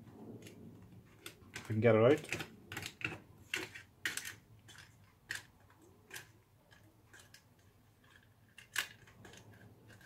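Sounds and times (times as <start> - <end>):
small metal parts clicking: 1.2 - 10.0.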